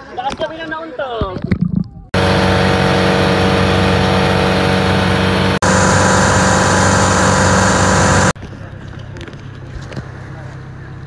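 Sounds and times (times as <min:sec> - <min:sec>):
boat engine running: 0:02.2 - 0:08.4
wind: 0:05.0 - 0:11.0.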